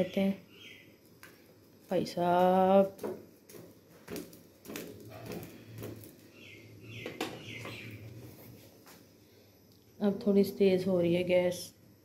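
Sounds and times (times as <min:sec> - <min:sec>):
bird chirps: 0:00.0 - 0:01.0, 0:06.3 - 0:08.1.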